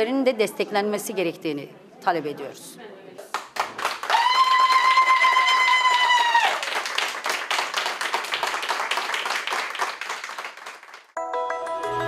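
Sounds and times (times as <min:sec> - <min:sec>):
people clapping: 0:03.2 - 0:12.0.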